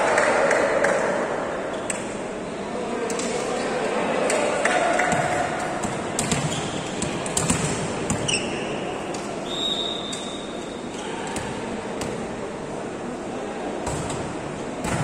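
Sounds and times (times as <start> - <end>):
crowd murmur: 0.0 - 15.0
volleyball hits and thuds: 5.1 - 8.3, 13.8 - 15.0.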